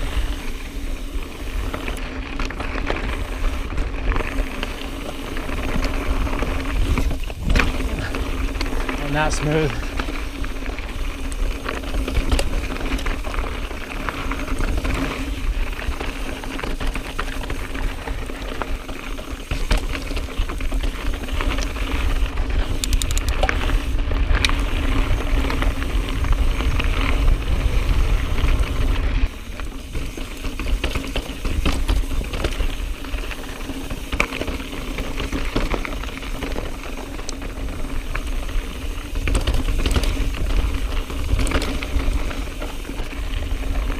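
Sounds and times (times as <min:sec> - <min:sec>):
tyres crunching on gravel: 0:00.0 - 0:22.8
mountain bike rattling over rocks: 0:00.0 - 0:43.9
wind rumble on microphone: 0:05.3 - 0:16.1, 0:19.7 - 0:30.8.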